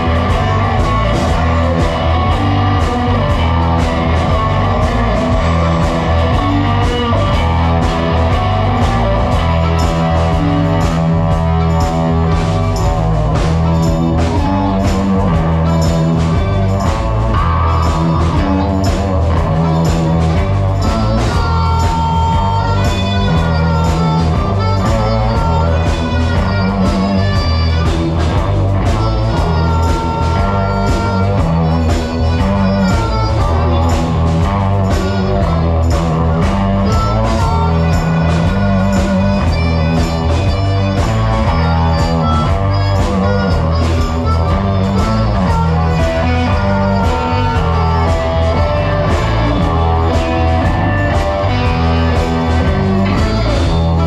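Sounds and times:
bass guitar: 0.0 - 54.0
drums with a steady beat: 0.0 - 54.0
electric guitar: 0.0 - 54.0.

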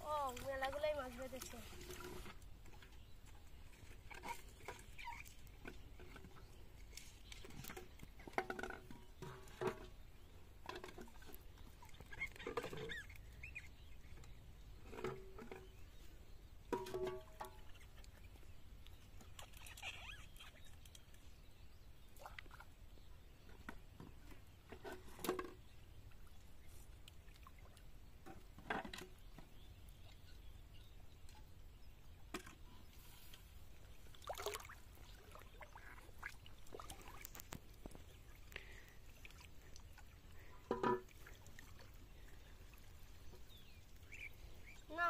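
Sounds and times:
water splashing and pouring: 34.0 - 45.0.

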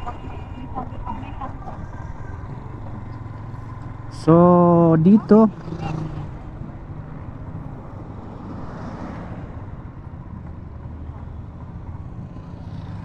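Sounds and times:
road noise: 0.0 - 13.0
motorcycle engine running: 1.9 - 7.7.

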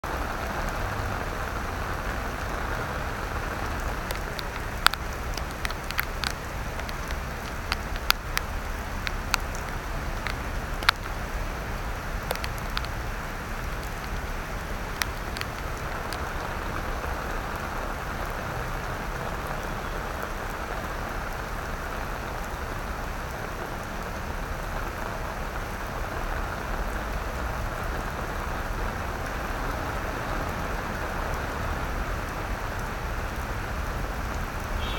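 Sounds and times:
rain on wet paving: 0.0 - 34.9
sharp drip ticks: 1.8 - 21.1, 26.8 - 34.9.

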